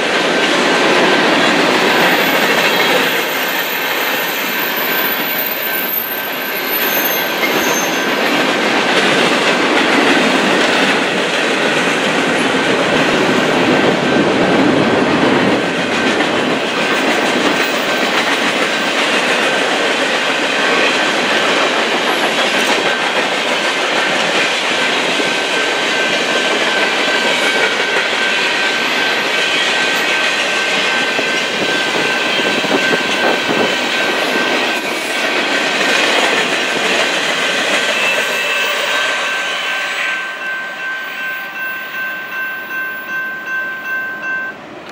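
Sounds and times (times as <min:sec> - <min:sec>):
freight train wheels rumbling on rails: 0:00.0 - 0:44.9.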